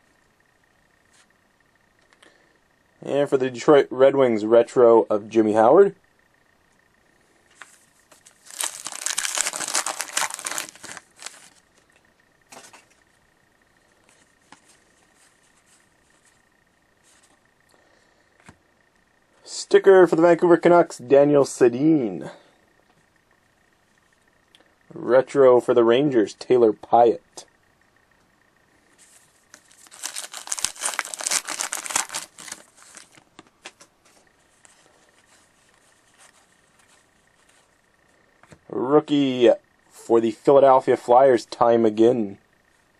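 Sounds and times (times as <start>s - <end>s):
cards being flipped through: 7.5s - 11.6s, 29.0s - 37.6s
wrapper tearing and crinkling: 8.3s - 11.6s, 29.5s - 33.8s.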